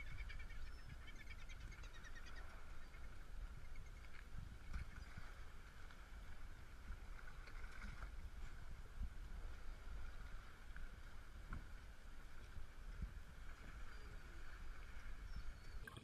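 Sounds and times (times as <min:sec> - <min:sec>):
faint seabird calls: 0:00.0 - 0:05.5
water at sea surface: 0:00.0 - 0:16.0
wind on microphone: 0:00.0 - 0:16.0.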